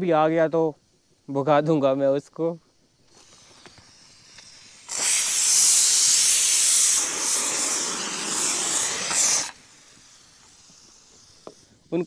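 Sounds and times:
pressure cooker steam hissing: 3.0s - 12.0s.

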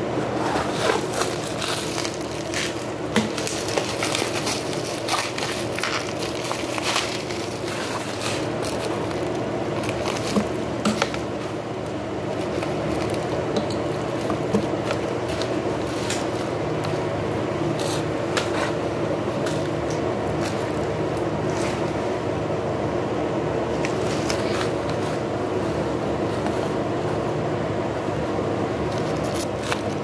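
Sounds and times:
steady room hum: 0.0s - 30.0s
plastic packaging crinkling: 0.4s - 21.9s, 28.8s - 30.0s.

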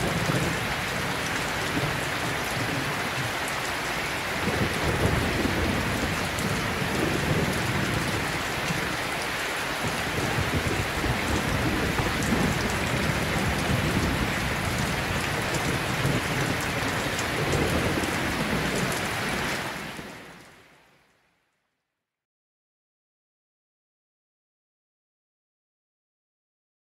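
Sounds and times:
thunder rumbling: 0.0s - 9.2s, 9.8s - 20.1s
steady rain: 0.0s - 21.6s.

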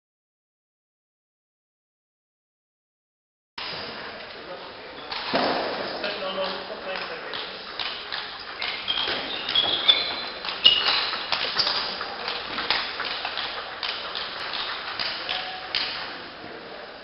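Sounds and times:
table tennis ball clicking: 6.4s - 16.2s
shoe squeaks: 8.6s - 12.0s.

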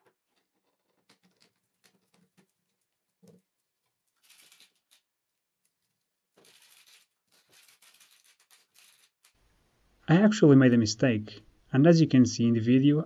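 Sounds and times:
rustling: 0.0s - 9.6s.

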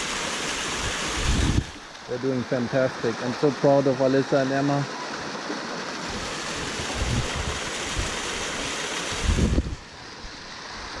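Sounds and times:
waterfall splashing over rock: 0.0s - 9.8s
wind buffeting microphone: 1.2s - 1.8s, 6.6s - 8.2s, 9.2s - 9.9s.

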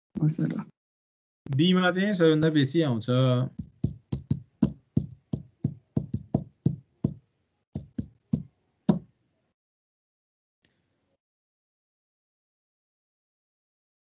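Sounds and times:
sharp taps: 3.5s - 7.2s, 7.8s - 9.0s.

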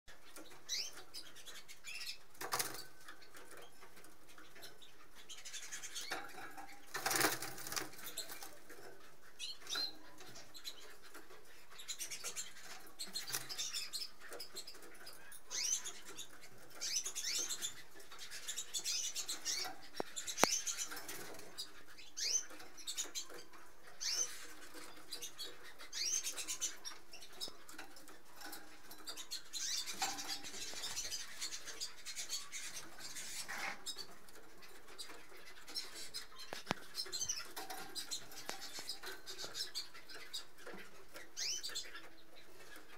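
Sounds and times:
canaries chirping: 0.1s - 42.9s
wing flutters: 6.9s - 8.6s.

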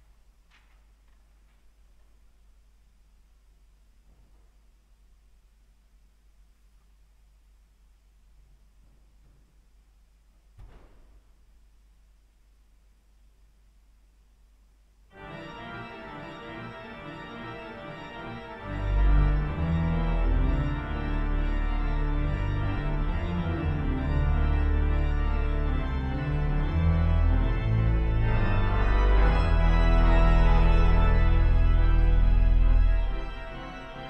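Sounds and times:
pipe organ chords: 15.1s - 34.0s.

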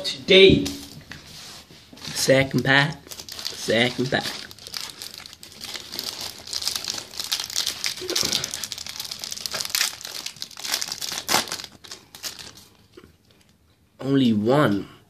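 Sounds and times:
foil wrapper tearing and crinkling: 3.0s - 12.7s.

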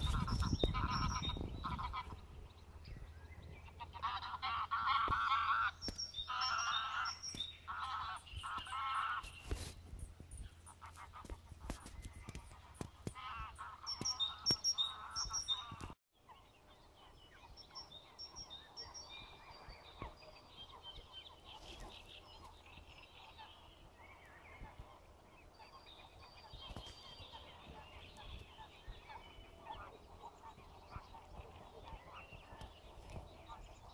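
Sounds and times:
geese honking: 0.0s - 2.3s, 3.6s - 9.7s, 10.7s - 16.0s, 27.3s - 32.7s
small birds chirping: 0.0s - 33.9s.

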